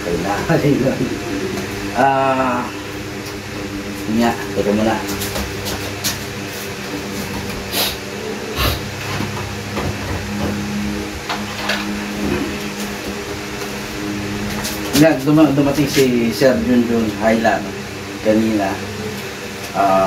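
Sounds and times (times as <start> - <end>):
low machine hum: 0.0 - 20.0.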